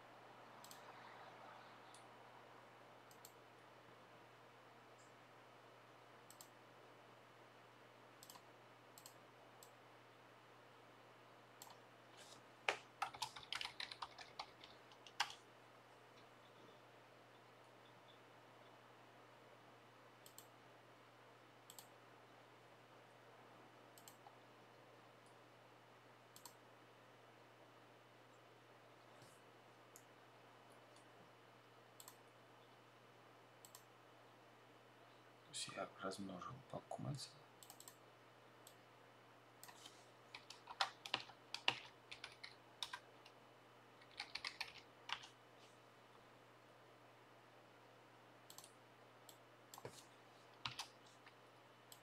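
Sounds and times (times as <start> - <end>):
low hiss: 0.0 - 52.0
computer mouse clicks: 0.6 - 1.0, 1.8 - 2.1, 3.0 - 3.5, 6.2 - 6.6, 8.2 - 9.8, 11.6 - 11.8, 12.7 - 15.4, 20.2 - 20.5, 21.6 - 22.0, 24.0 - 24.4, 26.3 - 26.6, 32.0 - 32.2, 33.6 - 33.9, 37.6 - 38.0, 39.6 - 43.4, 44.0 - 45.4, 48.4 - 52.0.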